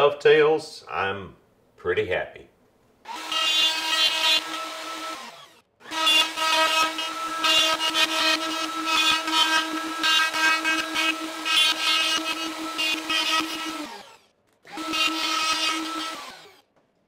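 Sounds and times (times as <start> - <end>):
router whining cutting wood: 3.1 - 16.6.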